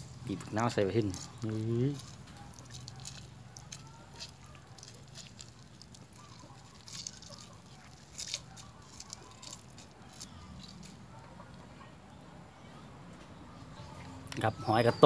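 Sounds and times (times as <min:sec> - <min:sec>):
small clicks and ticks: 0:01.0 - 0:11.0.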